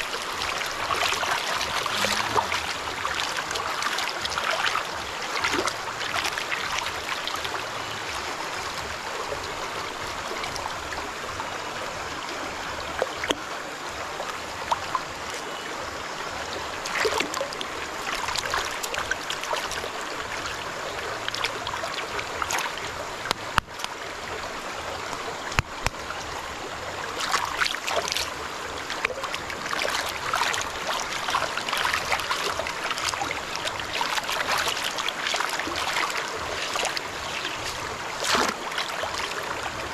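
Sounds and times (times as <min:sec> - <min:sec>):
hands scrubbing gravel underwater: 0:29.8 - 0:39.4.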